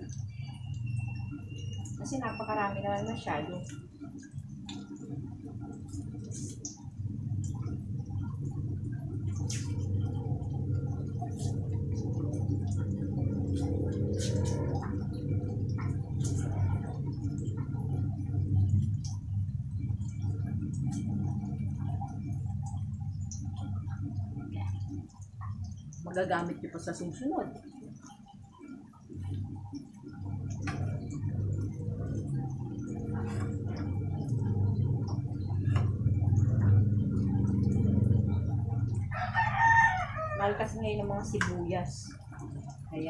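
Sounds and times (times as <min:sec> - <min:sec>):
food frying in oil: 0:00.0 - 0:43.0
tofu frying in hot oil: 0:28.8 - 0:43.0
rooster crowing: 0:39.0 - 0:40.8.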